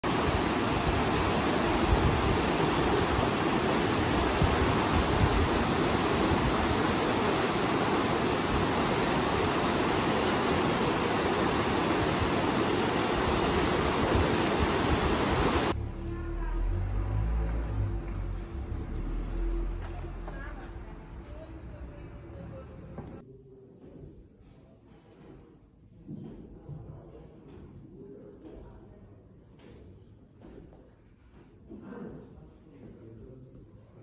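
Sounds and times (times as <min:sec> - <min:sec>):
river water rushing: 0:00.0 - 0:15.8.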